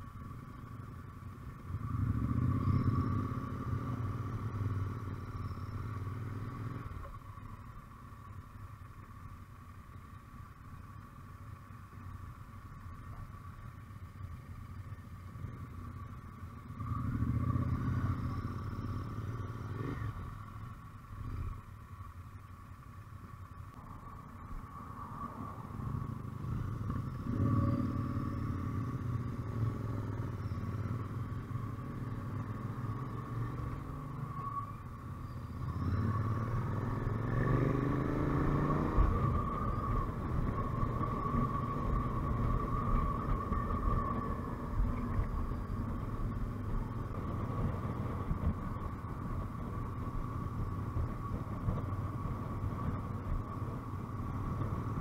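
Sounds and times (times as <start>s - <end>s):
motorcycle engines accelerating: 0.7s - 7.0s, 14.2s - 20.6s, 25.2s - 55.0s.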